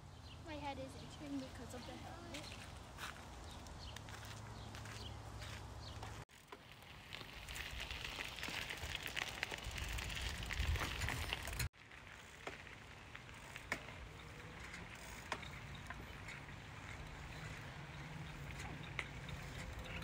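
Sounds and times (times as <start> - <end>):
tyres rolling on asphalt: 0.0 - 20.0
bike tyres crunching gravel: 1.4 - 20.0.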